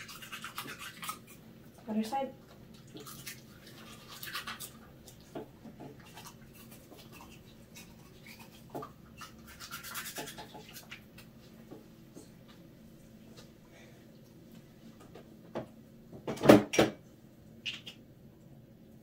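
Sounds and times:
toothbrush scrubbing teeth: 0.0s - 1.5s, 2.6s - 11.1s.

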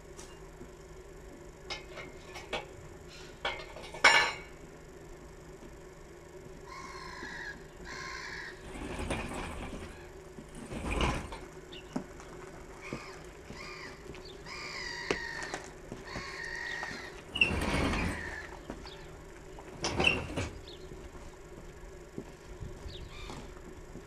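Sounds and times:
engine crane squeaking: 6.6s - 21.0s.

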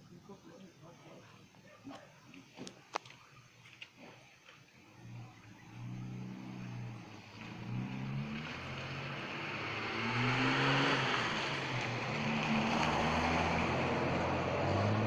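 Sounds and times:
vehicle engine approaching: 4.1s - 15.0s.

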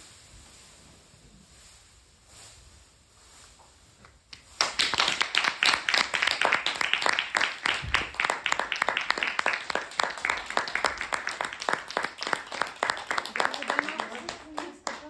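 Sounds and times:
audience applauding: 4.6s - 15.0s.

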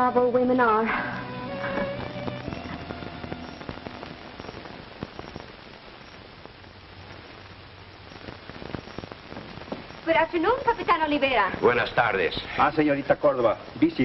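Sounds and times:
film soundtrack hiss and crackle: 0.0s - 14.0s
sharp pops: 8.1s - 11.0s.

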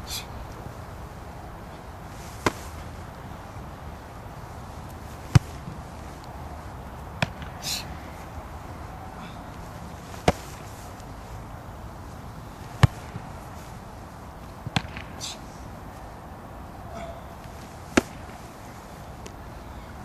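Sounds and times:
football kick thuds: 2.4s - 2.9s, 5.3s - 5.8s, 10.1s - 10.6s, 12.7s - 13.3s, 14.6s - 15.2s, 17.4s - 18.4s.

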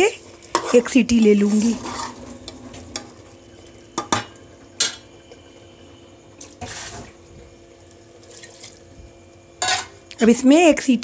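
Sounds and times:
spoon scraping pot: 0.5s - 3.1s.

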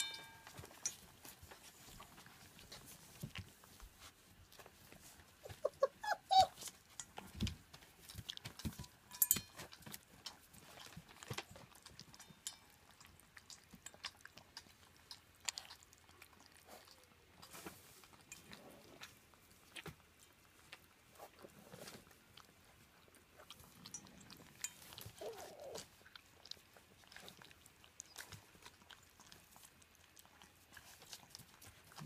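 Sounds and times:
puppies chewing and crunching: 0.0s - 32.0s
clicks and taps on metal bowl: 8.4s - 9.9s.

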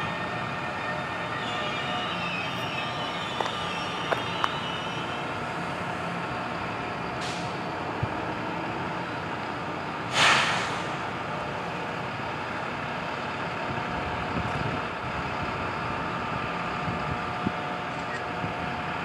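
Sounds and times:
locomotives humming with whine: 0.0s - 9.8s
air brakes hissing: 7.1s - 7.7s, 10.0s - 11.1s.

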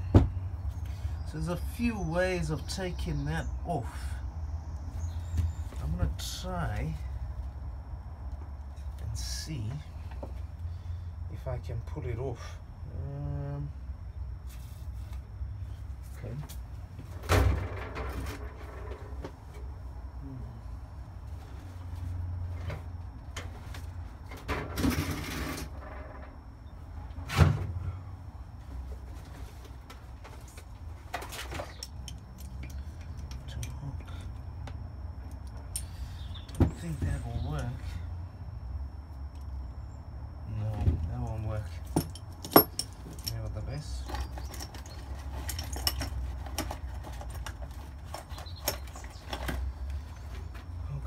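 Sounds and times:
scraping rustle: 14.4s - 15.3s
tools clicking and knocking: 41.9s - 49.6s.

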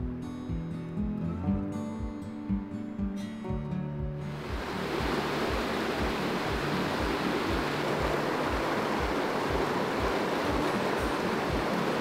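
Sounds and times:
background music low beat: 0.0s - 12.0s
waterfall rushing over boulders: 4.3s - 12.0s.

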